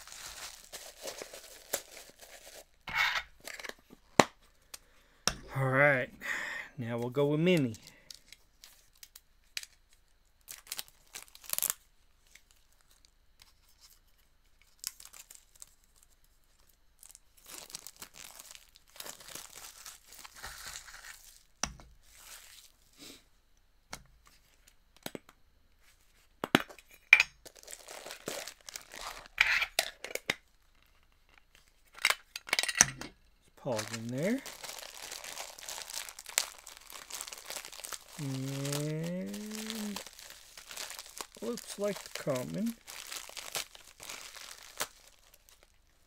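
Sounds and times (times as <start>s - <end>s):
plastic packaging tearing and crinkling: 0.0s - 3.8s, 7.5s - 13.1s, 13.7s - 22.8s, 27.4s - 31.0s, 33.6s - 46.0s.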